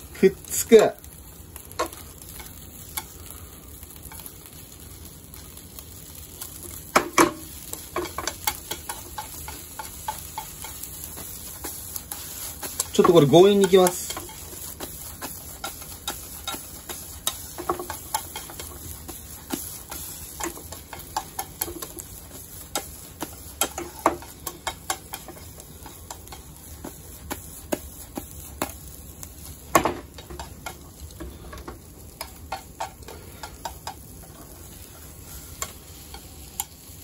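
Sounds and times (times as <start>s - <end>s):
chopsticks tapping on frying pan: 1.0s - 3.2s, 6.3s - 34.9s, 35.5s - 36.9s.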